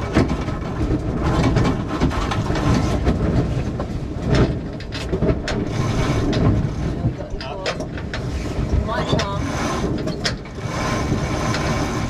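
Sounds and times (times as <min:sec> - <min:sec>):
rush of wind and water: 0:00.0 - 0:12.0.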